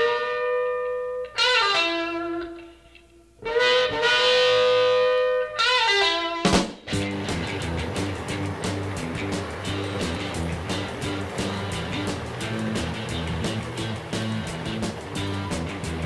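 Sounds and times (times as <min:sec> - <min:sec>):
rhythmic music passage: 0:06.5 - 0:16.0
long held music chords: 0:06.9 - 0:16.0.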